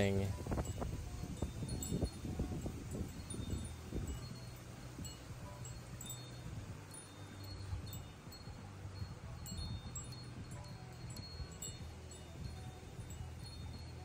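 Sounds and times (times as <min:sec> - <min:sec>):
low wind rumble: 0:00.0 - 0:14.0
wind chime tinkling: 0:00.0 - 0:14.0.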